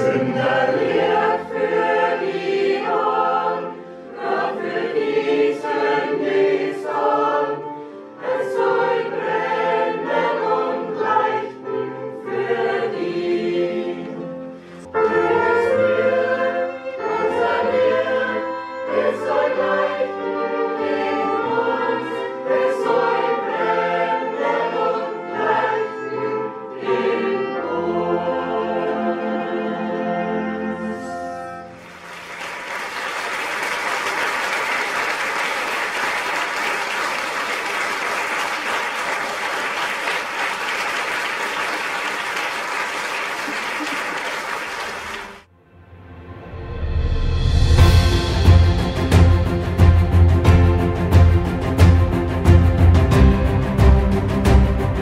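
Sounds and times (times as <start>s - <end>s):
mixed choir singing a hymn: 0.0s - 32.7s
violin accompaniment: 15.0s - 32.2s.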